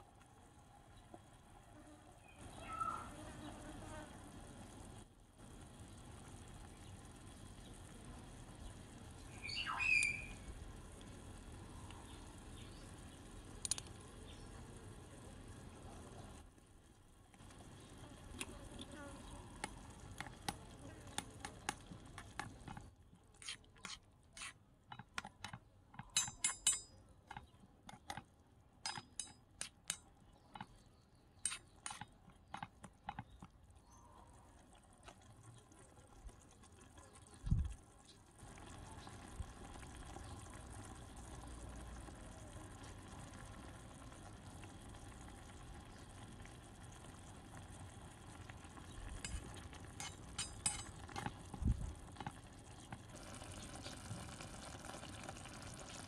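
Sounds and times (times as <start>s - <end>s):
curry simmering and bubbling: 0.0s - 56.0s
metal spoon clinking against pan: 24.9s - 28.2s, 28.8s - 30.7s, 31.4s - 32.6s, 49.2s - 51.3s.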